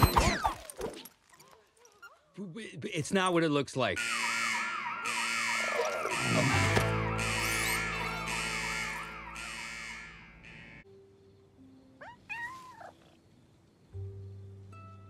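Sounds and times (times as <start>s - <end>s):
alarm siren wailing: 4.0s - 10.8s
held low music chord: 6.2s - 11.7s
cat meowing: 12.0s - 13.2s.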